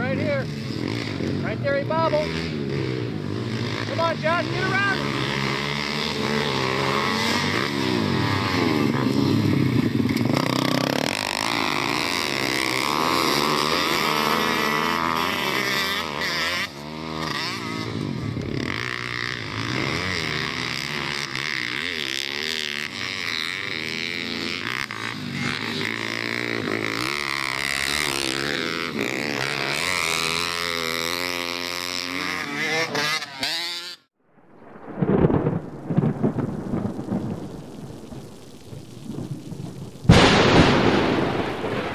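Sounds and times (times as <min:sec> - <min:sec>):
pit bike engines revving: 0:00.0 - 0:34.1
rain: 0:06.1 - 0:14.7, 0:34.3 - 0:41.9
thunder rumbling: 0:34.2 - 0:41.9.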